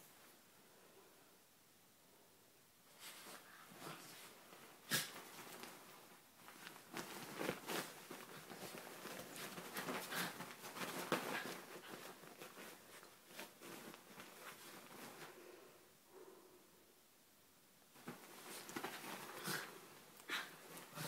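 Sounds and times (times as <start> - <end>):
bedding rustling: 2.9 - 15.7, 17.9 - 21.0
animals scuffling: 5.1 - 15.3.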